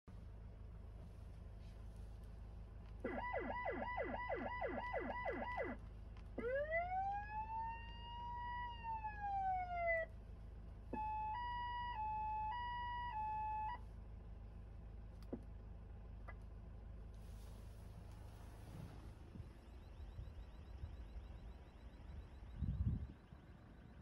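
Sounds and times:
ambulance siren: 3.0s - 5.8s, 6.4s - 10.2s, 10.9s - 13.9s, 19.2s - 24.0s.

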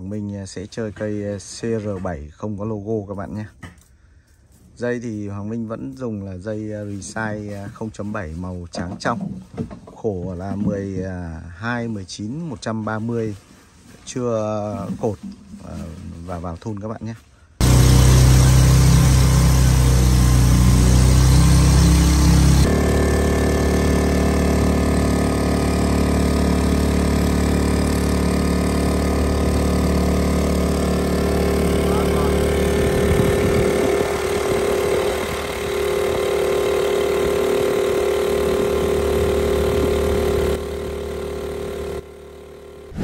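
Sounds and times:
boat petrol engine running: 17.6s - 43.0s.

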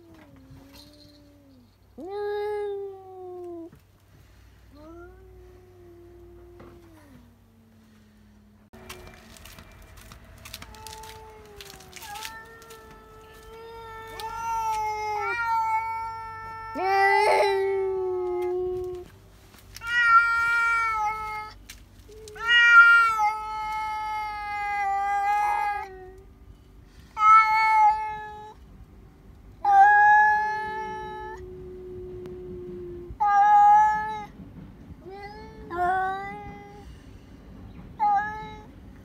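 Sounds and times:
cat yowling: 10.6s - 19.0s, 19.8s - 26.2s.

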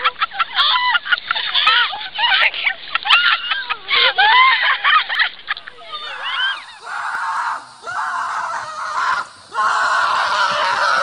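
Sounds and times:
person screaming: 6.0s - 11.0s.

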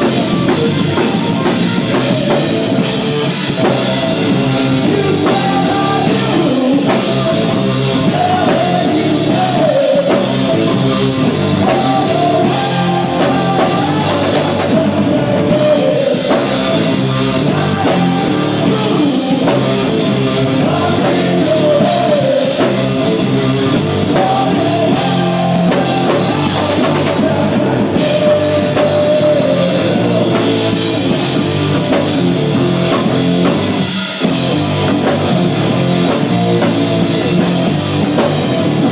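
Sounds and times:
drum kit: 0.0s - 38.9s
electric guitars: 0.0s - 38.9s.

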